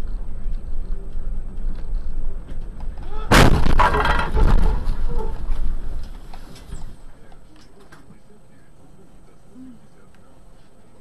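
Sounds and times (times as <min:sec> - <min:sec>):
vehicle driving rumble: 0:00.0 - 0:10.6
vehicle collision crash: 0:03.0 - 0:07.0
clattering debris: 0:03.3 - 0:05.8.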